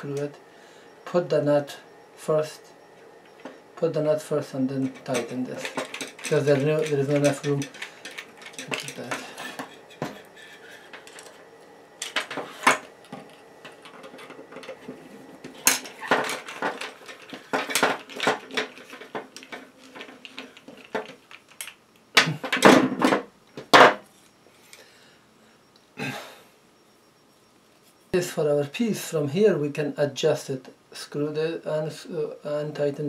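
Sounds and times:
small tools clicking and clinking: 0:02.8 - 0:23.8.

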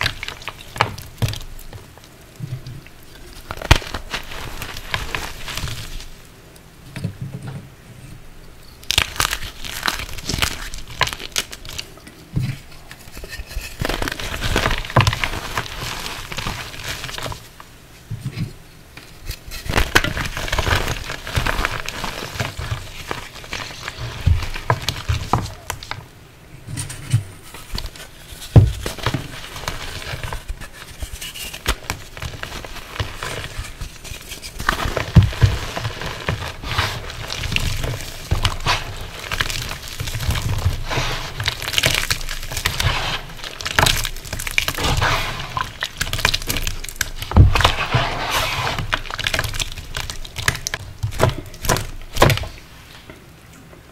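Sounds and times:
wet chalk crunching by hand: 0:03.2 - 0:06.1, 0:27.6 - 0:52.6.

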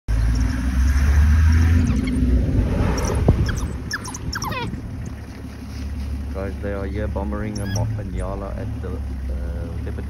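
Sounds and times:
vehicle engine running: 0:00.1 - 0:10.0
short high chirping calls: 0:03.0 - 0:05.2, 0:07.5 - 0:08.0.

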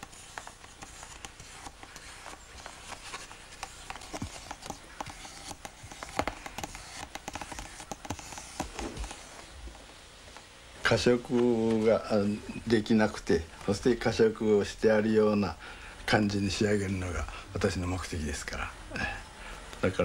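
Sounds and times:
brush taps and clicks: 0:00.0 - 0:09.3
steady hiss: 0:00.0 - 0:20.0.

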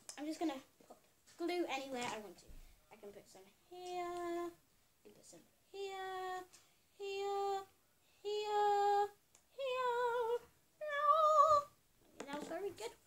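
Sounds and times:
girl singing held notes: 0:03.6 - 0:04.6, 0:05.7 - 0:13.0.

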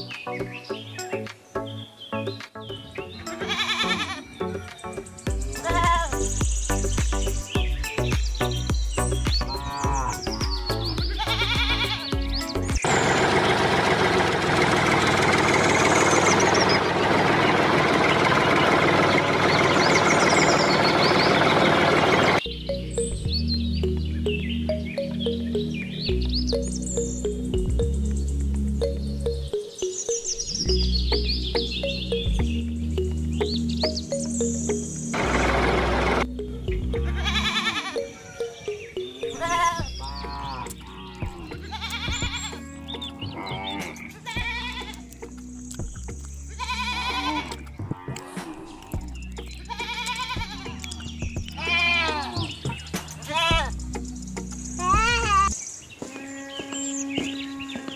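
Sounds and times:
background music low notes: 0:00.0 - 0:12.9, 0:22.3 - 0:57.9
wavering bleats: 0:03.2 - 0:04.7, 0:05.3 - 0:06.4, 0:09.4 - 0:12.4, 0:36.9 - 0:38.5, 0:39.1 - 0:45.2, 0:46.5 - 0:53.8, 0:54.8 - 0:57.9
tractor engine knocking idle: 0:12.8 - 0:22.4, 0:35.2 - 0:36.2.

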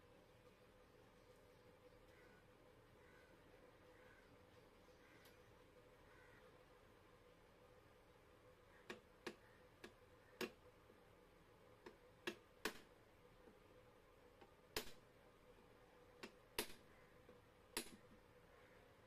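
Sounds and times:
hammer tapping steel punch: 0:16.2 - 0:16.8, 0:17.8 - 0:18.1.

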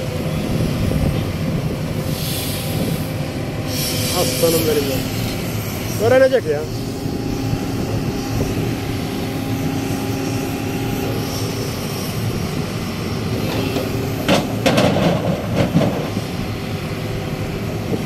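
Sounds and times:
diesel excavator engine running: 0:00.0 - 0:18.0
rocks crashing into truck bed: 0:14.2 - 0:16.2.

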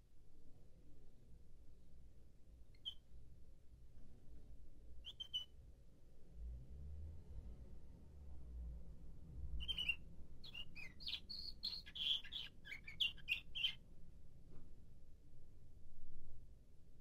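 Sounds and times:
canary chirping song: 0:02.7 - 0:03.1, 0:05.0 - 0:05.6, 0:09.6 - 0:13.8.

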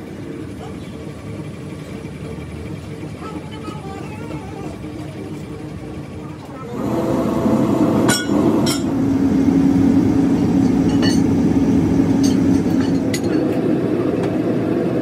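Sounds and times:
electric air blower humming: 0:06.6 - 0:15.0.

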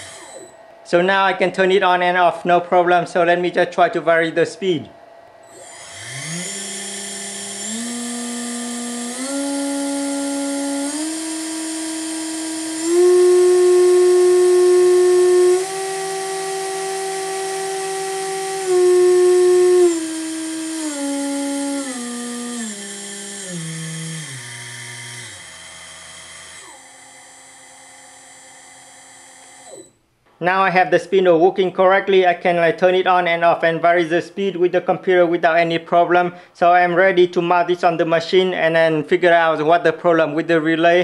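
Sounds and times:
electric spindle motor whine: 0:00.0 - 0:30.0.

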